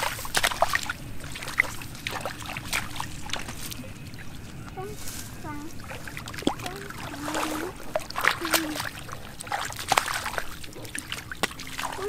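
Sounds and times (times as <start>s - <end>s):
splashing in shallow water: 0.0s - 12.0s.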